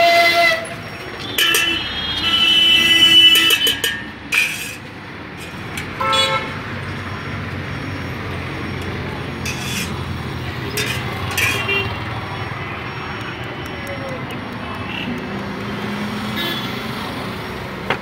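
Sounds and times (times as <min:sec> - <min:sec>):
hissy scraping noises: 0:03.4 - 0:06.0, 0:09.4 - 0:11.9.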